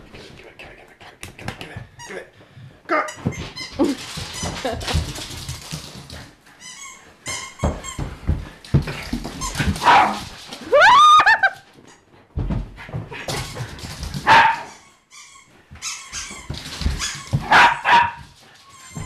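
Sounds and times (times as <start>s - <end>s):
thudding running footsteps: 1.3s - 6.4s, 7.1s - 11.6s, 12.3s - 14.7s, 15.7s - 19.0s
puppy barking and yipping: 14.3s - 14.8s, 17.0s - 18.2s.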